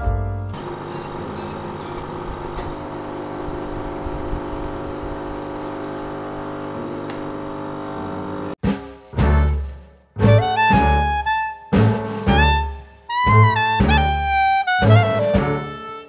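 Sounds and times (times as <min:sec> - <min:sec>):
hot air gun whirring drone: 0:00.6 - 0:08.6.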